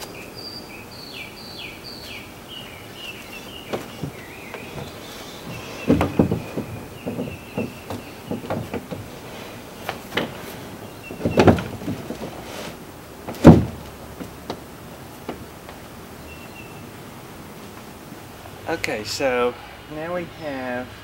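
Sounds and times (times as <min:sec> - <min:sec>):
canoe knocking against wooden ramp: 0:03.3 - 0:15.8
heavy thump: 0:03.6 - 0:14.6.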